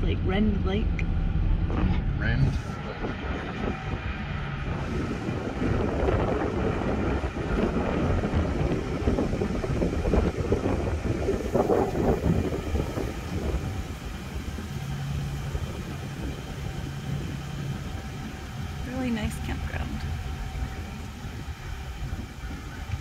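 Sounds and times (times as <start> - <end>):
vehicle engine and road noise: 0.0 - 23.0.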